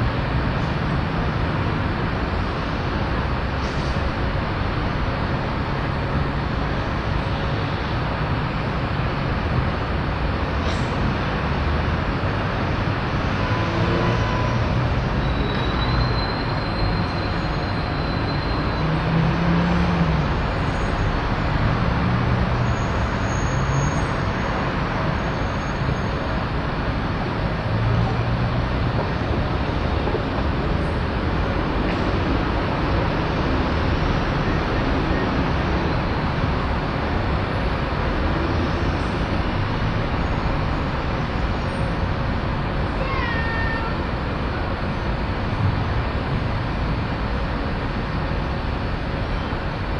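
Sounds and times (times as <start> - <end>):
railway yard noise: 0.0 - 49.9
traffic: 0.0 - 49.9
thin high whistle: 15.2 - 18.8.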